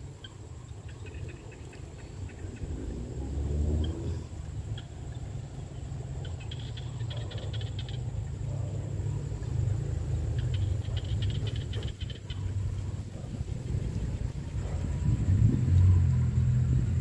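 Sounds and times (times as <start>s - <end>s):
frogs calling with clicking notes: 0.0s - 17.0s
steady low rumble: 6.2s - 17.0s.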